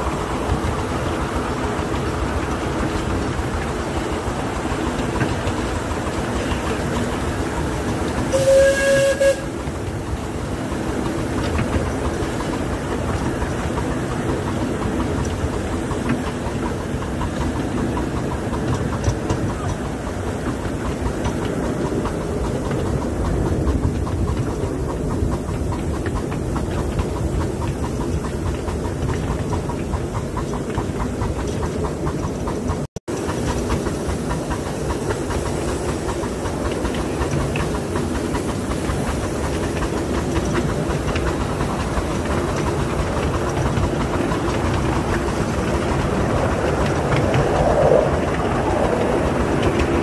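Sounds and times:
train wheels clicking over rails: 0.0 - 50.0
steam whistle blast: 8.3 - 9.6.

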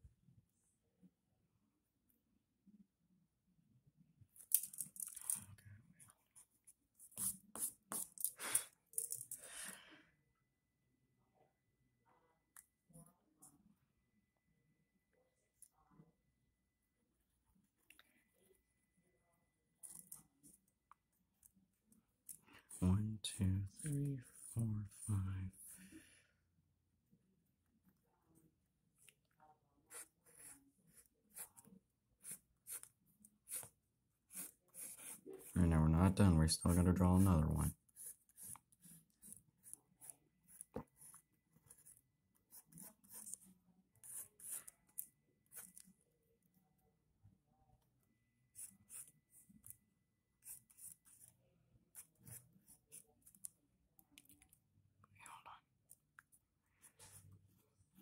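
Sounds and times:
pencil scratching on paper: 6.2 - 8.2, 23.7 - 25.9, 29.8 - 46.0, 48.4 - 49.8, 50.4 - 53.5, 56.8 - 58.0.

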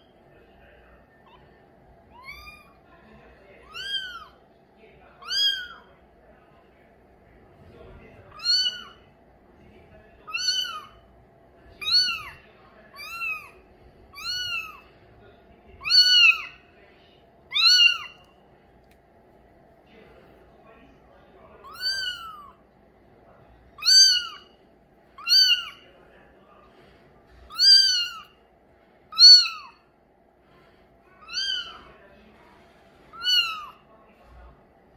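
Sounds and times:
kitten meowing: 2.1 - 2.8, 3.6 - 4.4, 5.2 - 5.9, 8.3 - 9.0, 10.3 - 11.0, 11.8 - 14.8, 15.8 - 16.6, 17.5 - 18.2, 21.6 - 22.6, 23.8 - 24.5, 25.2 - 25.8, 27.5 - 28.3, 29.1 - 29.8, 31.2 - 31.9, 33.1 - 33.8.

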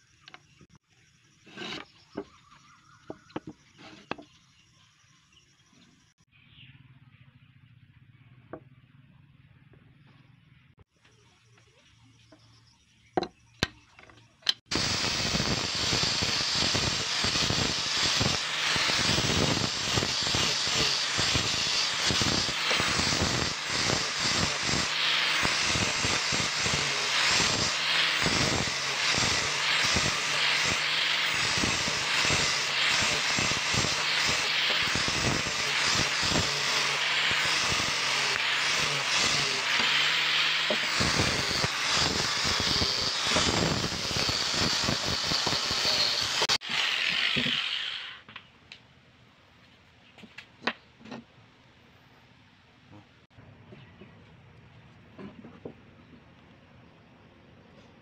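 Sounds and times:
angle grinder sanding wood: 1.4 - 2.2, 14.7 - 48.2.

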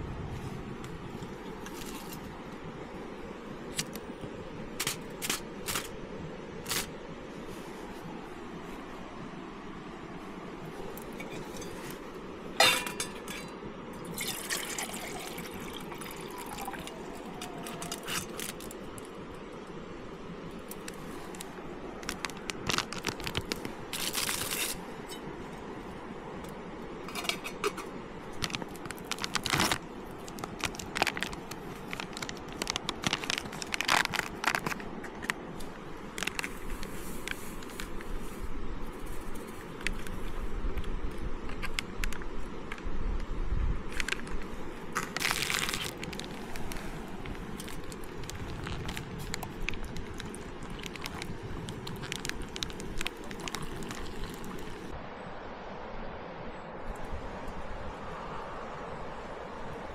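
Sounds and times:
metal mug and lid clinking: 12.6 - 13.5
water pouring: 12.6 - 18.7, 47.6 - 54.9
aluminium foil rustling: 14.7 - 19.0, 20.7 - 24.9, 28.4 - 37.9, 44.9 - 54.9.

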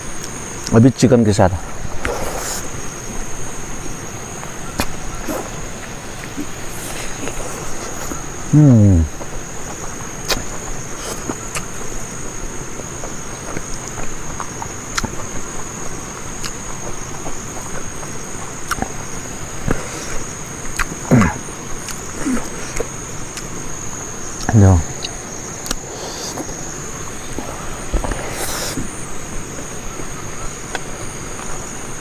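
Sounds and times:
insects trilling: 0.0 - 32.0
wet eating clicks and smacks: 9.2 - 11.9, 12.8 - 22.1, 22.7 - 23.6, 24.4 - 26.5.

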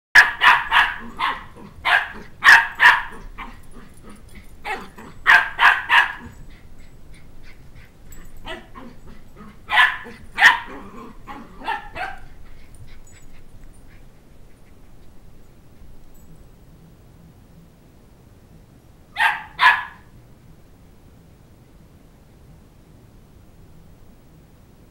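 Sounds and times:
puppy yapping: 0.2 - 3.9, 4.6 - 6.4, 8.4 - 12.4, 19.2 - 20.1.

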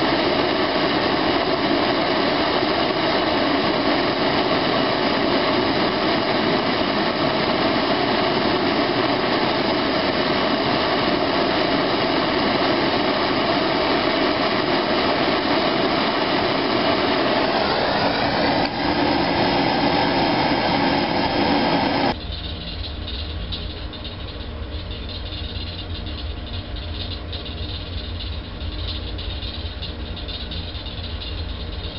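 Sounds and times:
gas torch flame hissing: 0.0 - 22.2.

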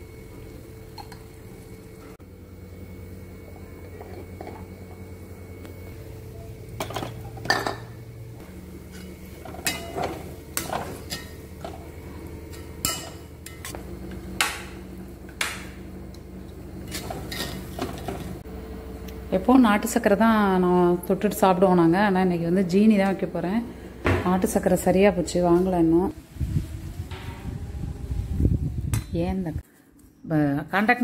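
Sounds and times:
low hum: 0.0 - 30.2
metal spoons clinking on a pan: 8.9 - 11.4, 12.5 - 13.7.

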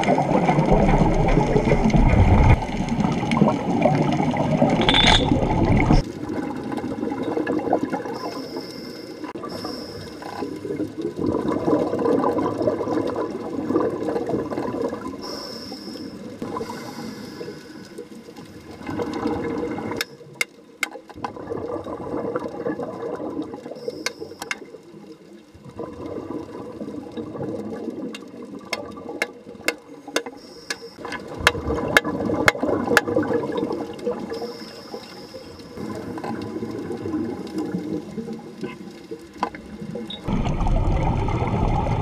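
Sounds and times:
sharp clicks underwater: 0.0 - 6.1, 17.2 - 24.8, 27.2 - 41.6
gurgling bubbles: 0.0 - 8.4, 10.4 - 15.2, 18.6 - 20.0, 21.2 - 23.8, 25.6 - 29.6, 31.0 - 34.6, 35.6 - 42.0.

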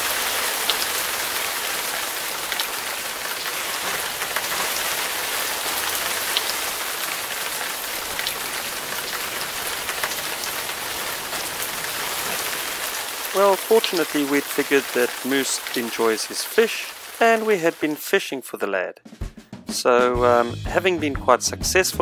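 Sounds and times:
sharp water drips: 0.0 - 18.2
heavy rain hiss: 0.0 - 18.4.

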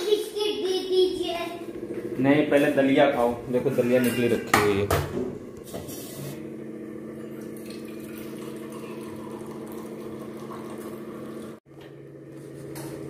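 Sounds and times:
tea pouring into steel cups: 7.4 - 11.6.

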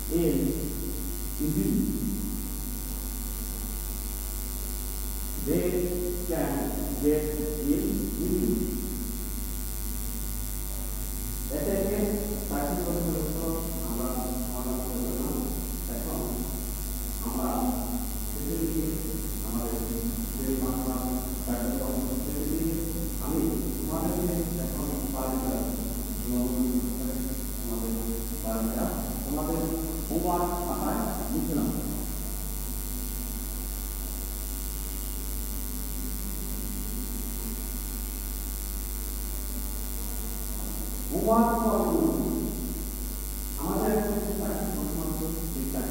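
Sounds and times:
man speaking into a microphone: 0.0 - 2.4, 5.4 - 9.0, 11.4 - 32.3, 41.1 - 42.7, 43.6 - 45.9
constant hiss: 0.0 - 45.9
low electrical hum: 0.0 - 45.9.

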